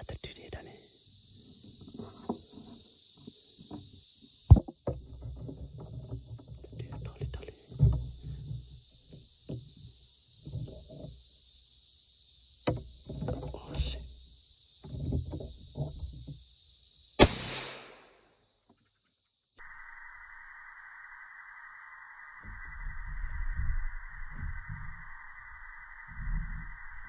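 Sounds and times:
high insect drone: 0.0s - 27.0s
low rustling and knocking: 1.6s - 11.4s, 12.6s - 16.5s
sharp click: 17.2s - 18.1s.

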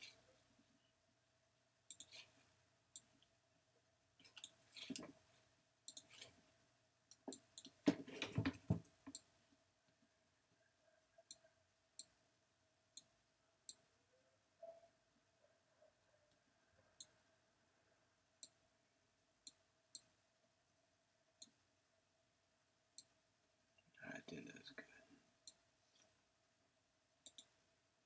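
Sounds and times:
computer mouse clicking: 1.9s - 2.3s, 5.9s - 6.4s, 27.2s - 27.5s.

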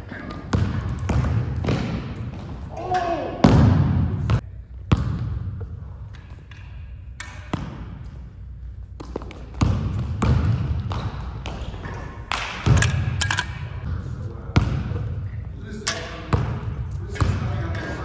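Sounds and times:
basketball bouncing on hardwood floor: 0.5s - 2.6s, 3.4s - 5.6s, 9.0s - 13.1s.

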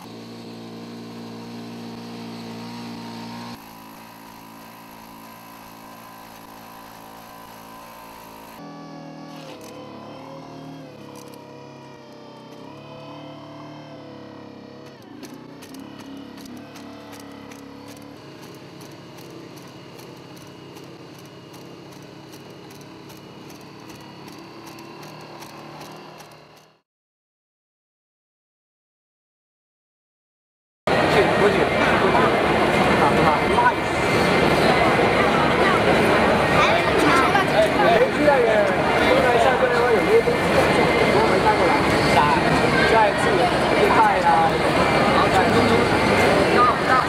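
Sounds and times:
robot engine drone: 0.0s - 26.8s, 30.9s - 47.0s
sharp clicks: 14.8s - 26.8s.

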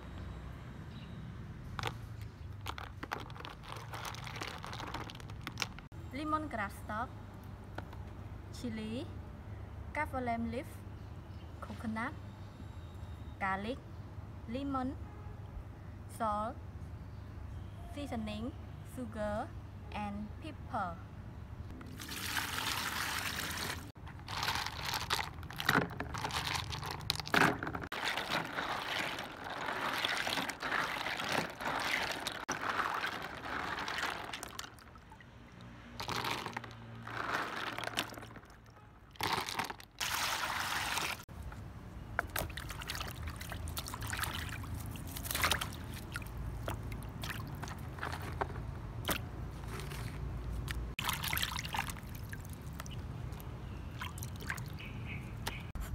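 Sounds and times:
water pouring into plastic basin: 2.6s - 5.9s, 21.8s - 41.2s, 42.2s - 48.2s, 51.0s - 53.0s
hands sloshing in water: 27.9s - 36.5s, 42.2s - 47.9s, 50.6s - 53.4s.

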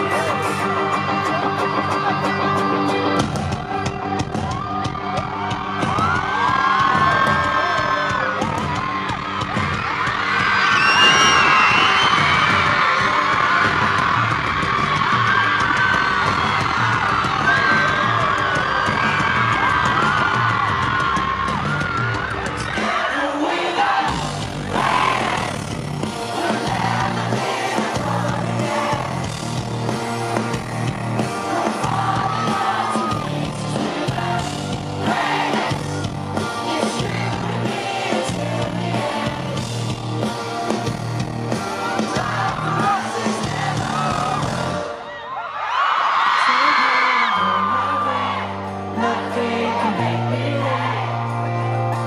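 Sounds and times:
man singing lead vocal: 0.0s - 4.3s, 22.6s - 25.6s, 26.2s - 29.7s, 31.2s - 39.7s, 42.0s - 44.8s, 46.4s - 51.6s
live pop-rock band: 0.0s - 45.4s, 46.2s - 52.0s
crowd screaming and singing along: 0.0s - 52.0s.

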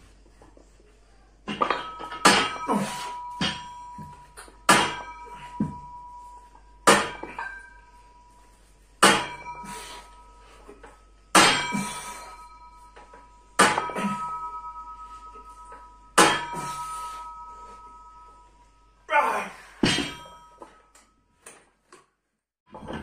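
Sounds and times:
barbell clanking: 9.0s - 18.4s.

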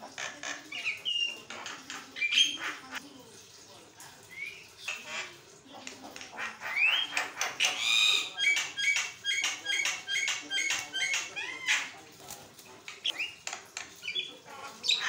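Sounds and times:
myna chattering: 0.0s - 3.3s.

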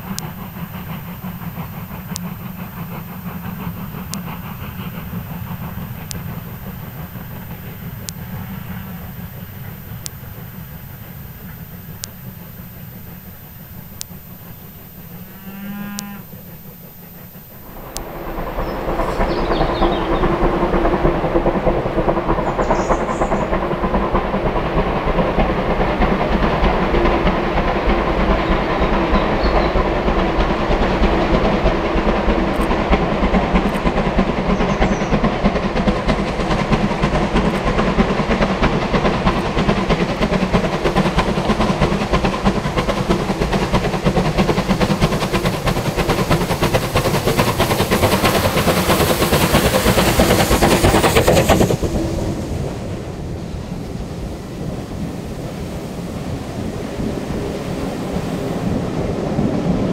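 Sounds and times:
distant steam train: 0.0s - 59.9s
steam locomotive working hard: 0.0s - 59.9s
cow mooing: 15.2s - 16.4s.

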